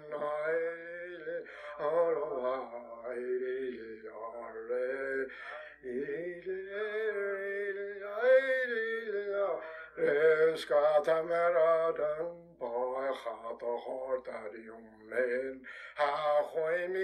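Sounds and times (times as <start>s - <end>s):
person singing unaccompanied: 0.0s - 17.0s
singer breathing: 1.4s - 1.8s, 5.2s - 5.8s, 9.6s - 10.0s, 15.6s - 16.0s.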